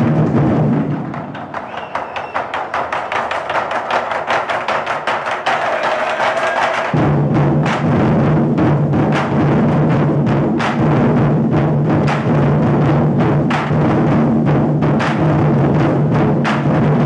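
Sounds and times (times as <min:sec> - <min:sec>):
deep drums beating rapidly: 0:00.0 - 0:17.0.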